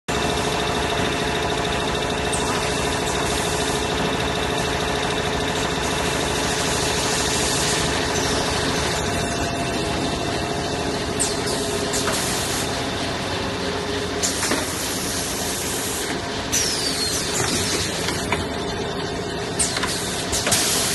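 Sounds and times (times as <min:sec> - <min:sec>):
packing machine humming: 0:00.1 - 0:20.9
sharp machine clicks: 0:19.4 - 0:20.9.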